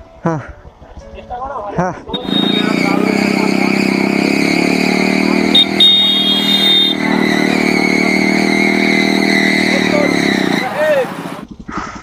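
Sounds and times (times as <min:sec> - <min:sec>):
motorcycle engine running loud: 0:00.6 - 0:12.0.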